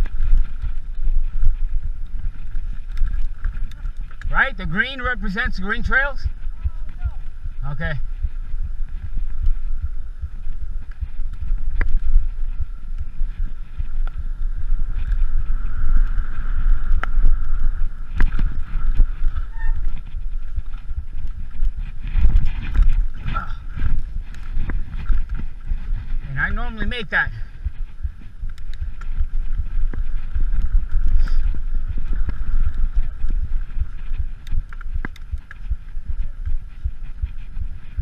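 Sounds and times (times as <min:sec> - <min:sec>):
bike tyres clicking on rock: 0:00.0 - 0:38.0
wind buffeting microphone: 0:00.0 - 0:38.0.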